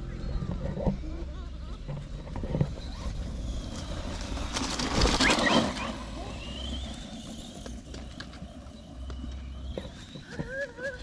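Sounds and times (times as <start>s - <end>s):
toy car motor whine: 2.4s - 11.0s.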